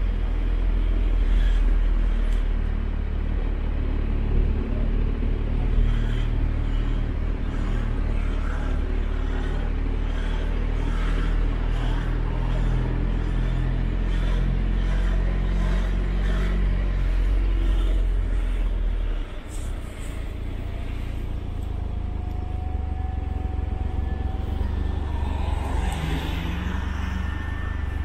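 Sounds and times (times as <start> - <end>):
motorcycle engine running: 0.0 - 28.0
quiet rumble: 0.0 - 28.0
faint rising tone: 21.8 - 28.0.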